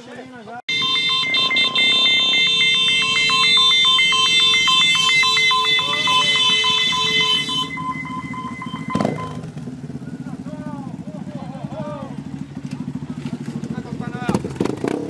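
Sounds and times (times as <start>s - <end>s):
motorcycle engines: 0.0s - 15.0s
electronic two-tone siren: 0.7s - 9.5s.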